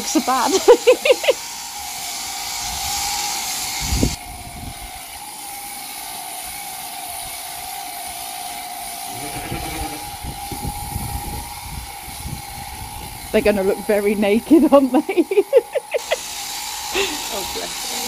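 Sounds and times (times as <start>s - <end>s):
loud hiss: 0.0s - 6.1s, 8.8s - 14.4s, 15.6s - 18.0s
electric sheep shears humming: 0.0s - 18.0s.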